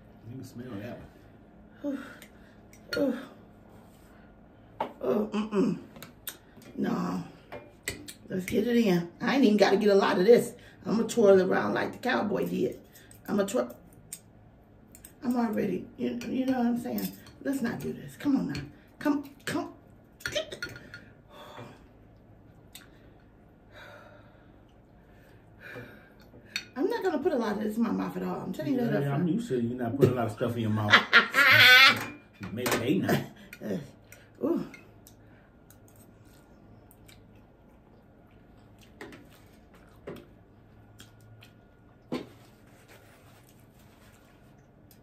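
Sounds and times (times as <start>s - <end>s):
faint steady hum: 0.0s - 45.0s
person chewing noodles: 35.0s - 42.1s.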